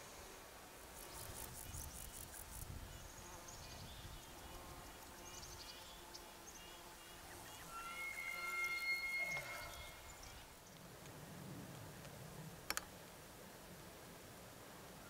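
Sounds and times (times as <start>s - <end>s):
small birds chirping: 1.0s - 8.3s
insect trilling: 7.2s - 10.4s
low wind rumble: 9.9s - 15.0s.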